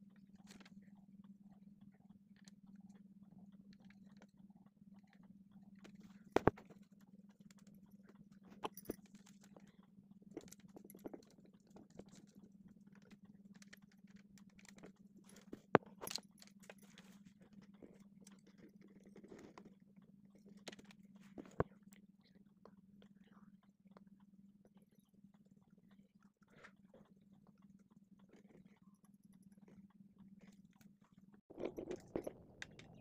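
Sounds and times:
steady low hum: 0.0 - 33.0
clicks and taps of handled objects: 5.8 - 6.9.

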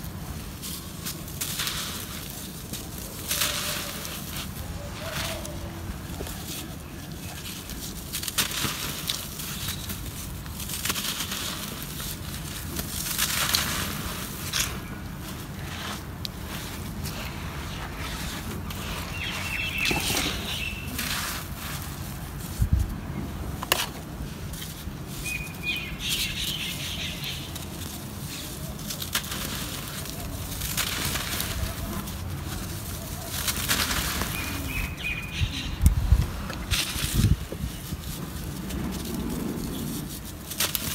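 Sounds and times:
hands rubbing dry soil: 0.0 - 40.9
bird chirps: 19.1 - 21.0, 25.2 - 27.5, 34.3 - 35.8.

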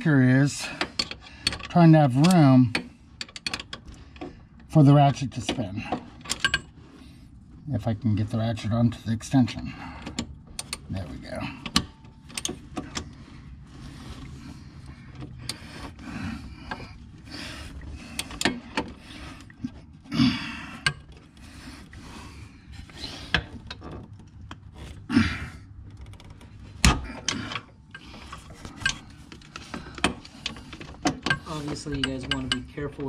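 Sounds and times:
metal clinks and knocks: 5.8 - 6.8, 25.9 - 33.0.

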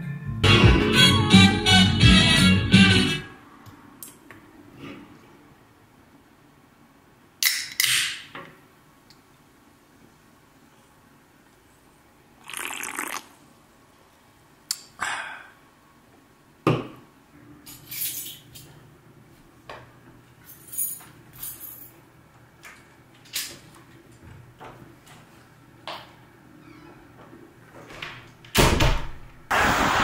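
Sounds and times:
drink fizzing: 12.4 - 13.4.

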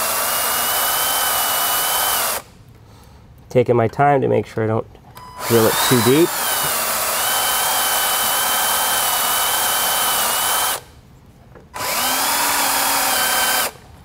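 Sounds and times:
cordless drill drilling: 0.0 - 2.5, 5.3 - 10.9, 11.8 - 13.8.

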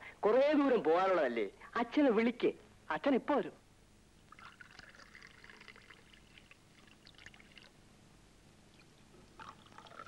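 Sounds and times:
coffee pouring into glass: 4.2 - 7.8, 8.7 - 10.0.

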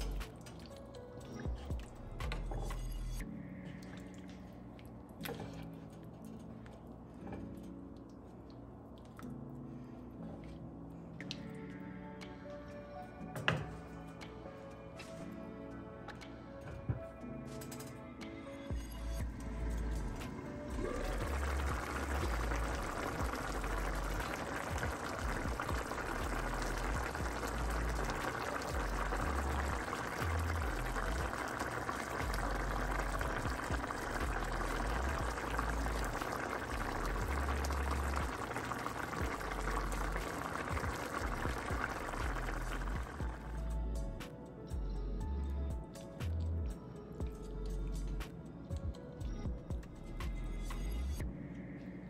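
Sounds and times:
stew bubbling and crackling: 20.7 - 43.8.

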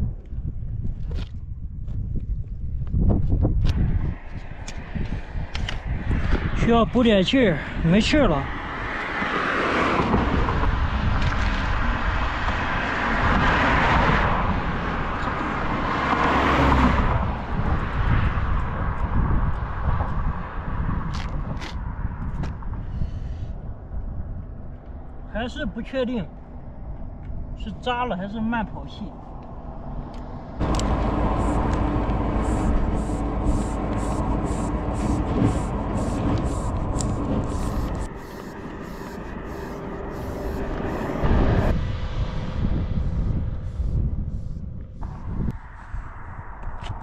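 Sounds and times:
low traffic rumble: 0.0 - 47.0
tyres rushing on asphalt: 3.8 - 19.0, 29.7 - 42.6
pump air hiss: 30.6 - 41.7.

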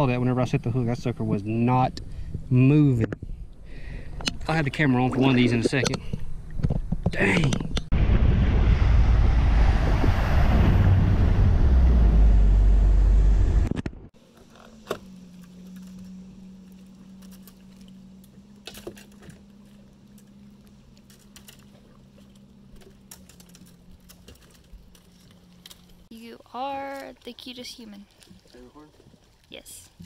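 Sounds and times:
low steady hum: 0.0 - 30.0
wind rumble on microphone: 6.4 - 14.1
boat engine at speed: 8.9 - 26.1
fishing rods and reels clattering: 14.2 - 26.1.

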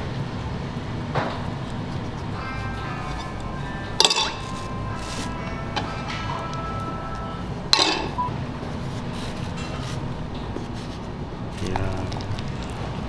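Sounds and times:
dishes clinking: 4.0 - 4.8, 7.7 - 8.3.

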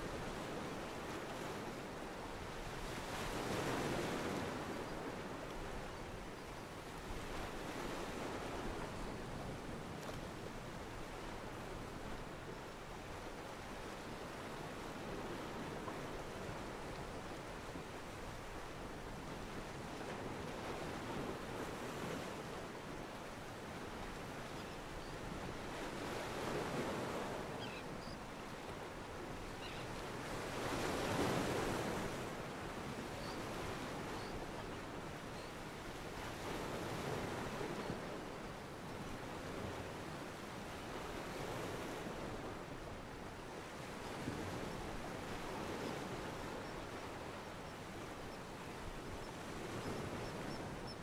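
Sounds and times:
ocean waves washing against a pier: 0.0 - 38.4.

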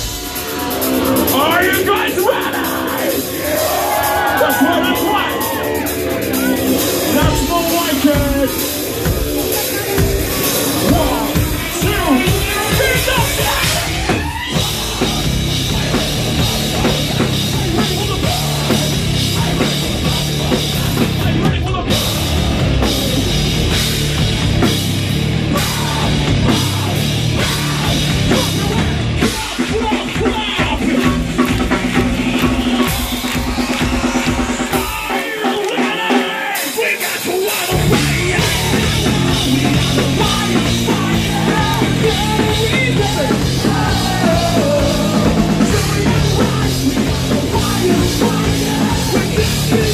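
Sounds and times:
metal band playing live: 0.0 - 49.9
pounding drum kit: 0.0 - 49.9.

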